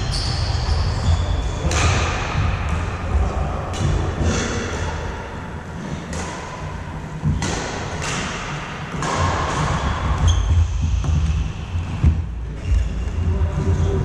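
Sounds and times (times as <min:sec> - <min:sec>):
racket hitting shuttlecock: 0:01.6 - 0:03.0, 0:05.8 - 0:12.2.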